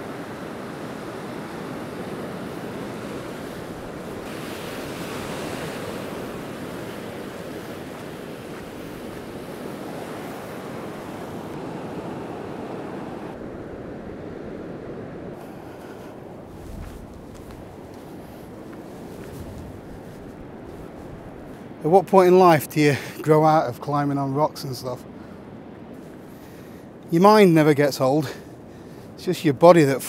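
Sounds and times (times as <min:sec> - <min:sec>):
surf breaking on beach: 0:00.0 - 0:21.5.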